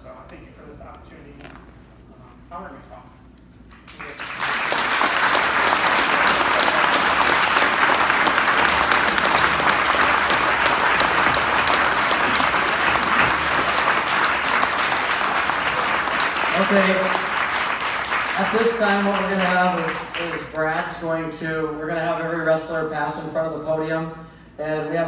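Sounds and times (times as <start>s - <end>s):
crowd applauding: 3.7s - 20.7s.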